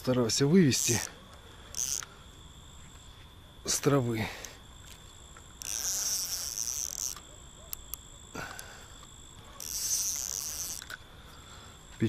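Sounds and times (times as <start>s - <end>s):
crickets trilling: 0.0s - 12.0s
sharp clicks: 4.4s - 11.0s.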